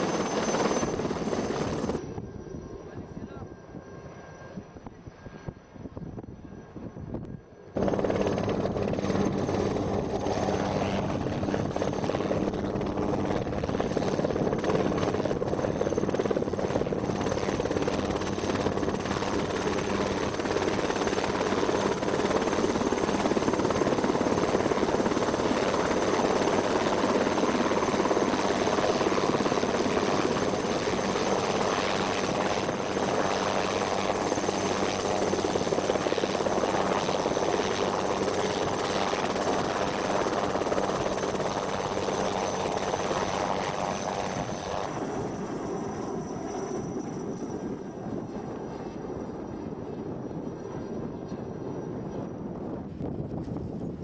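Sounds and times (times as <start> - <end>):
helicopter rotor hovering: 0.0 - 54.0.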